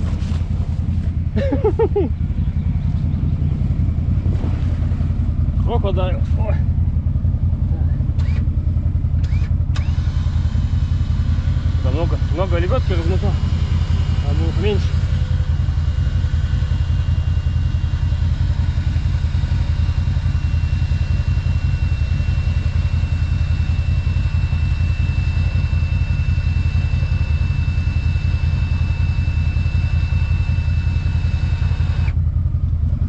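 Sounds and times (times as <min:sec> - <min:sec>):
engine idling: 0:00.0 - 0:33.0
thin high whine: 0:09.2 - 0:32.2.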